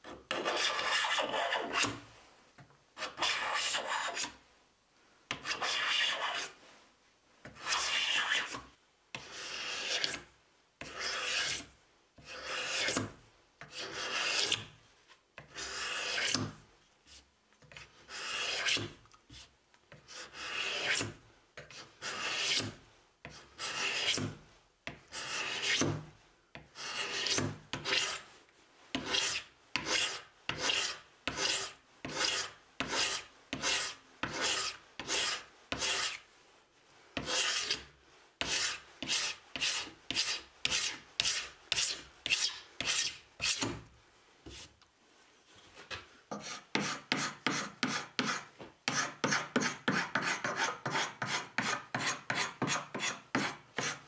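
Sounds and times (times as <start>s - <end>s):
hand scraper rasping on wood: 0.3s - 1.9s, 3.0s - 4.3s, 5.4s - 6.5s, 7.6s - 8.6s, 9.2s - 10.2s, 10.8s - 14.7s, 15.4s - 16.5s, 17.7s - 19.0s, 20.0s - 24.4s, 25.1s - 26.0s, 26.8s - 28.2s, 29.0s - 36.2s, 37.2s - 43.8s, 46.3s - 54.0s.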